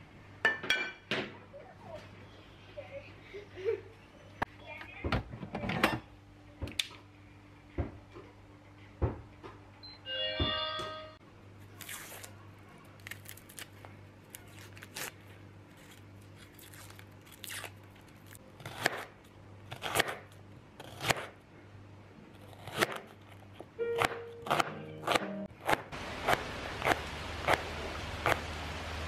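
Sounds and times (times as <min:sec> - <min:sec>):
rice cooker electronic chime: 0:09.8 - 0:11.2
papery crackling of peeling: 0:11.8 - 0:18.4.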